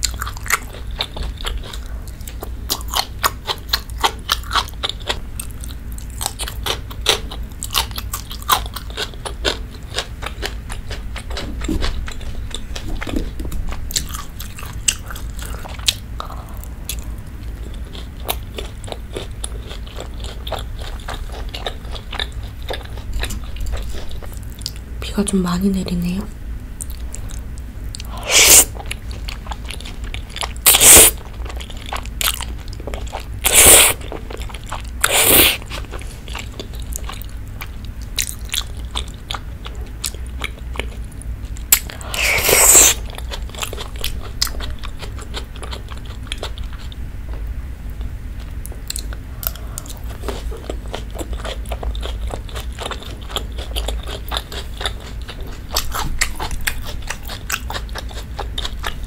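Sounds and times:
loud slurping of noodles: 0:28.2 - 0:28.8, 0:30.7 - 0:31.2, 0:33.5 - 0:34.0, 0:35.0 - 0:35.6, 0:42.1 - 0:43.0
wet chewing clicks: 0:47.9 - 0:59.0.

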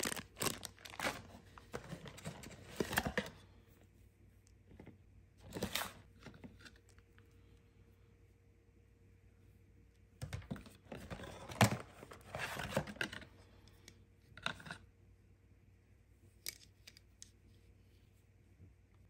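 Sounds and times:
cables and packaging rustling: 0:00.0 - 0:07.6, 0:10.2 - 0:14.8.

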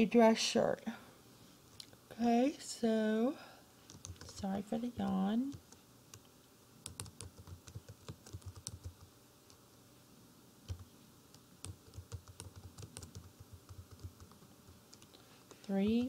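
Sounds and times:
computer keyboard typing: 0:03.9 - 0:09.1, 0:10.7 - 0:16.0.

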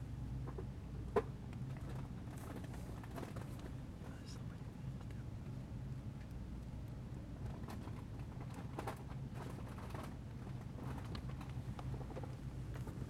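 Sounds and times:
low electrical hum: 0:00.0 - 0:13.0
faint clicks and rustles: 0:01.5 - 0:04.1, 0:07.4 - 0:13.0.

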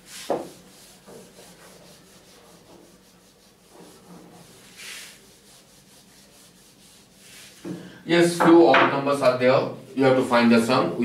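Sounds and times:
eraser rubbing whiteboard: 0:00.0 - 0:07.8.

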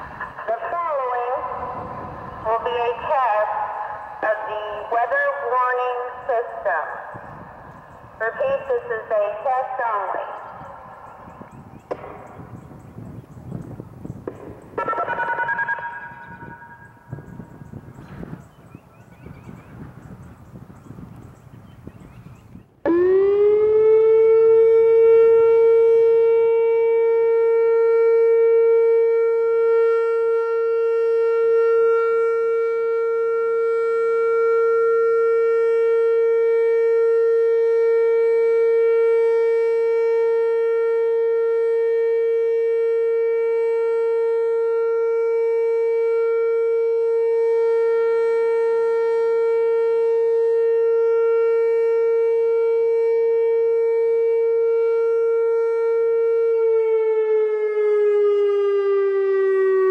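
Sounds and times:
warning siren steady tone: 0:00.0 - 0:59.9.

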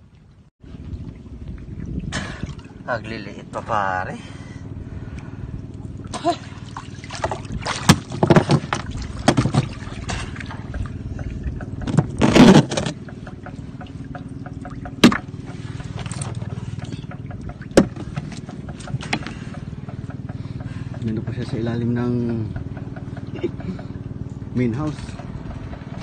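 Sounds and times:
sharp knocks: 0:10.7 - 0:21.2.

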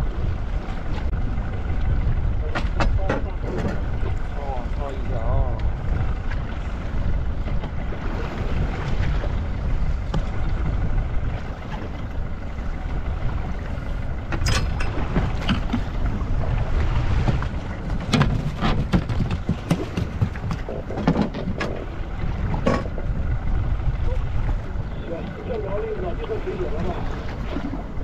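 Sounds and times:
boat engine low rumble: 0:00.0 - 0:28.0
sharp knocks and clicks: 0:17.3 - 0:21.8.

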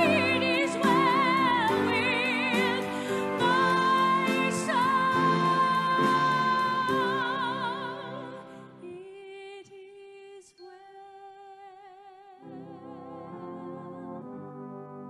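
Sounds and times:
brass band playing: 0:00.0 - 0:07.5, 0:12.7 - 0:15.0
woman singing: 0:00.0 - 0:14.6.

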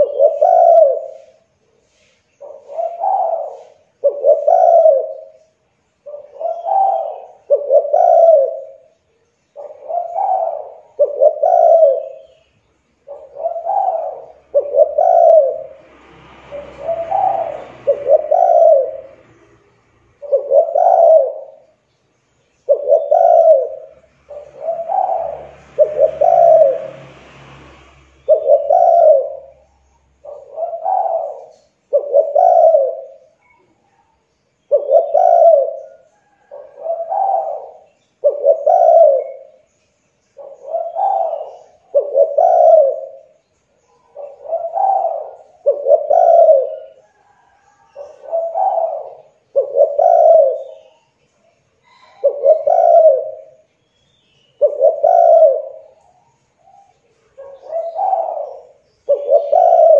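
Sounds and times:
dove cooing: 0:00.0 - 0:21.9, 0:22.5 - 0:27.2, 0:28.2 - 0:59.9
faint rushing noise: 0:14.0 - 0:20.3, 0:23.5 - 0:30.3.

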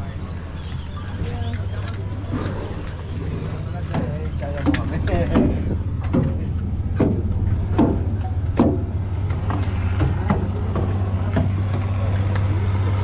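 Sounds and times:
ferry engine drone: 0:00.0 - 0:13.0
footsteps on metal stairs: 0:03.8 - 0:12.5.

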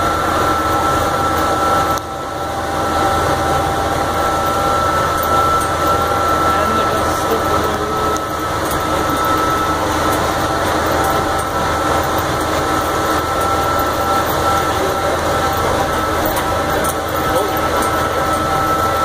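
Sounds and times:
thin steady whine: 0:00.0 - 0:19.0
tractor engine running: 0:00.0 - 0:19.0
wagon ride rattle: 0:04.1 - 0:19.0.

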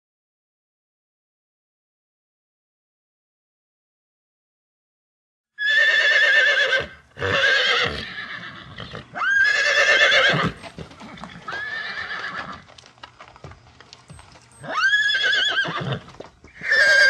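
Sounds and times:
horse whinnying: 0:05.6 - 0:12.7, 0:14.6 - 0:17.0.

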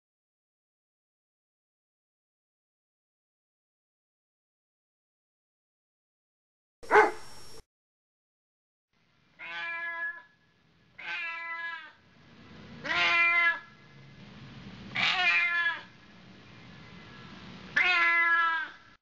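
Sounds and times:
cat meowing: 0:06.9 - 0:07.2, 0:09.4 - 0:10.4, 0:11.0 - 0:12.0, 0:12.8 - 0:13.7, 0:15.0 - 0:15.9, 0:17.8 - 0:18.8.

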